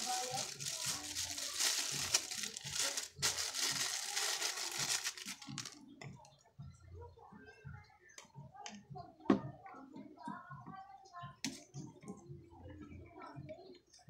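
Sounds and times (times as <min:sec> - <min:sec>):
plastic crinkling: 0:00.0 - 0:05.8.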